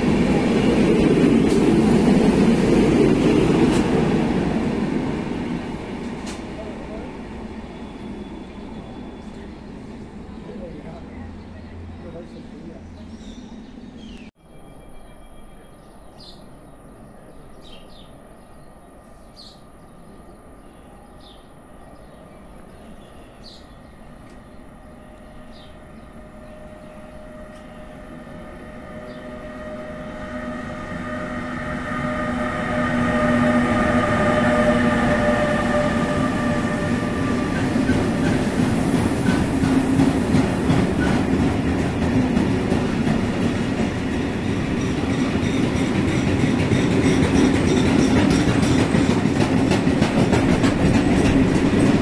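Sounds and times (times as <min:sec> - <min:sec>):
train wheels clickety-clack: 0:00.0 - 0:04.3, 0:06.0 - 0:06.7, 0:35.2 - 0:52.0
electric locomotive whine: 0:00.0 - 0:12.9, 0:19.8 - 0:52.0.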